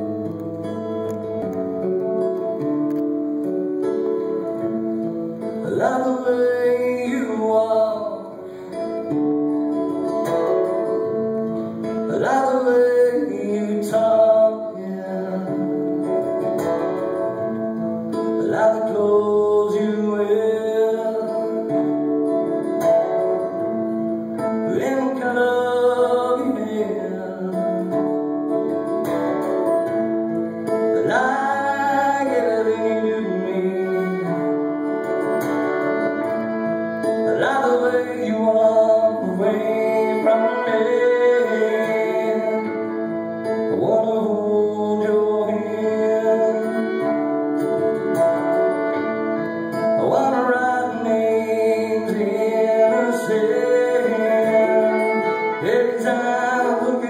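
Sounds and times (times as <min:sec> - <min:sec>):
acoustic guitar strumming: 0:00.0 - 0:57.0
fiddle playing tune: 0:29.9 - 0:44.6, 0:45.5 - 0:57.0.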